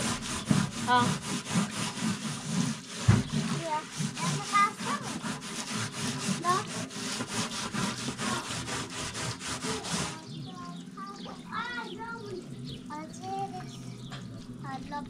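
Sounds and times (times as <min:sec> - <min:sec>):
scouring pad scrubbing metal mesh: 0:00.0 - 0:12.2.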